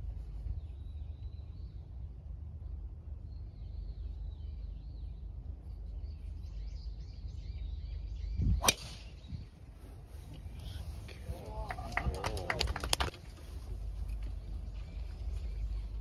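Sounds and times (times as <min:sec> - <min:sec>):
low outdoor rumble: 0:00.0 - 0:16.0
golf club striking ball: 0:08.6 - 0:09.1.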